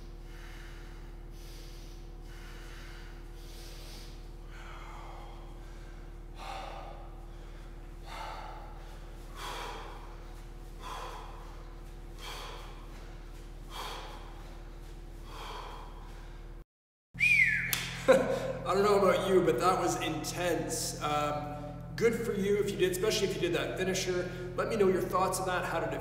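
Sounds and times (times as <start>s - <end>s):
man breathing hard: 0.0s - 16.6s, 24.2s - 24.6s
steady low hum: 0.0s - 16.6s, 17.2s - 26.0s.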